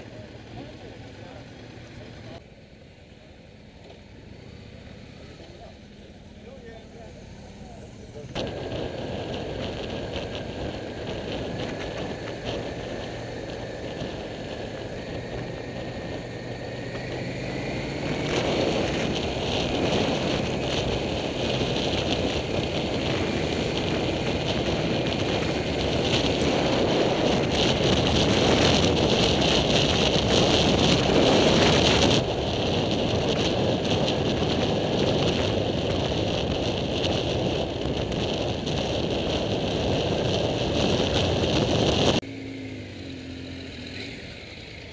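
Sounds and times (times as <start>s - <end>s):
motorcycle engine running: 0.0s - 44.9s
wind rushing over microphone: 8.0s - 42.9s.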